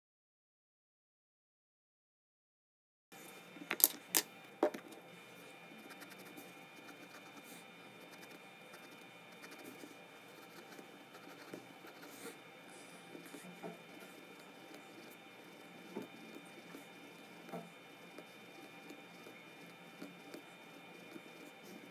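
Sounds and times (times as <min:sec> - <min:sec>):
pencil scratching on paper: 0:05.8 - 0:21.9.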